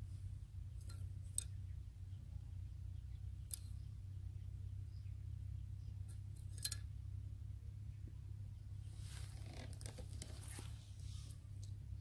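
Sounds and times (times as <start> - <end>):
steady low hum: 0.0 - 12.0
bamboo sticks clicking: 0.8 - 1.6, 3.5 - 3.7.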